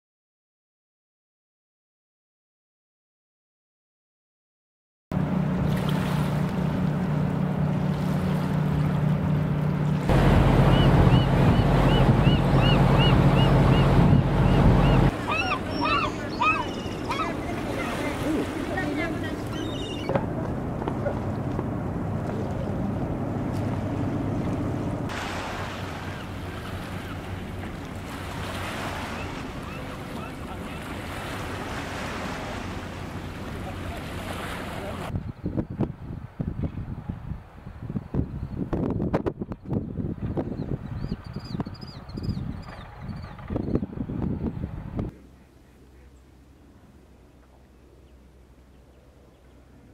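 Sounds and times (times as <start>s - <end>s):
boat engine drone: 5.1s - 35.1s, 42.7s - 49.9s
water: 5.1s - 49.9s
wind noise: 10.1s - 15.2s, 35.1s - 45.2s
bird high calls: 10.6s - 18.0s, 19.4s - 20.2s, 29.0s - 31.0s
waves lapping against rocks: 22.2s - 35.1s.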